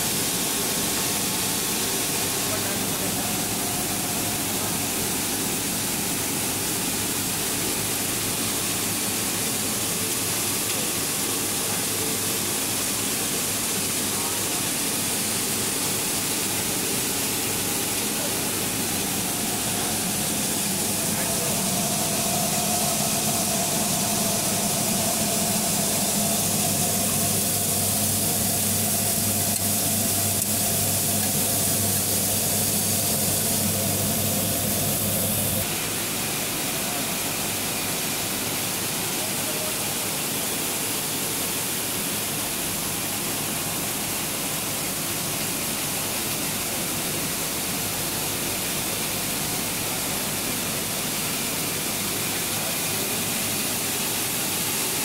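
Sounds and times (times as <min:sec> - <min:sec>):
low machine hum: 0:16.0 - 0:35.7
pulveriser machine rushing: 0:18.2 - 0:35.7.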